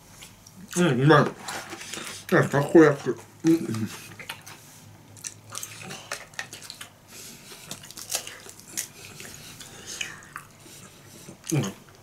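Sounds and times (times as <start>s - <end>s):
chewing with wet mouth clicks: 3.6s - 12.0s.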